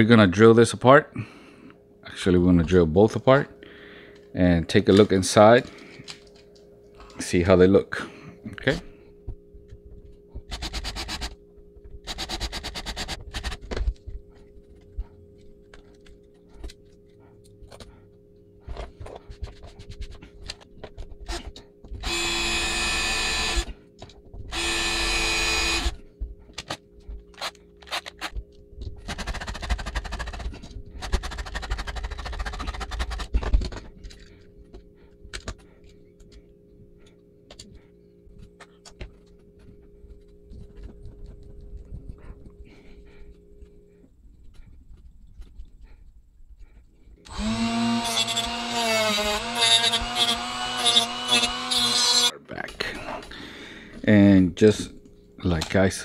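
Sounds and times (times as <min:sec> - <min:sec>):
power drill drilling: 0:22.0 - 0:23.7, 0:24.5 - 0:26.0, 0:47.3 - 0:52.3
parts being handled clicking: 0:26.5 - 0:37.8.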